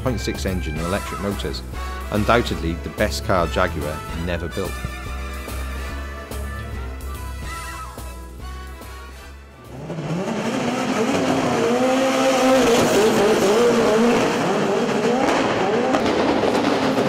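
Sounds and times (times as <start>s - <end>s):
racing car engine revving: 9.5s - 17.0s.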